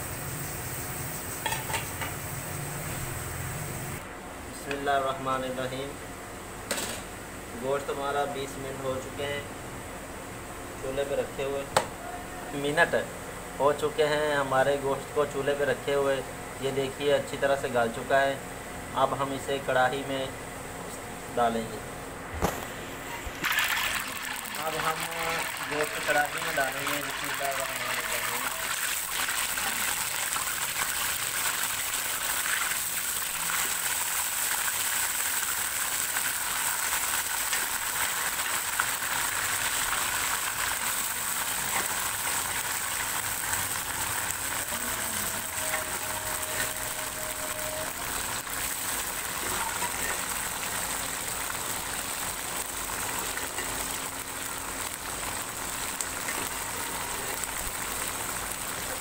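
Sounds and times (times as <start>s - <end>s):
meat sizzling in hot oil: 0.0s - 4.0s, 23.4s - 59.0s.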